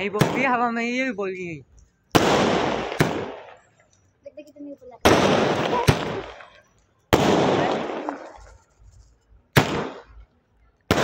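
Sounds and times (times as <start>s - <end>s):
firework bursts with crackling: 2.2s - 3.7s, 4.4s - 10.3s.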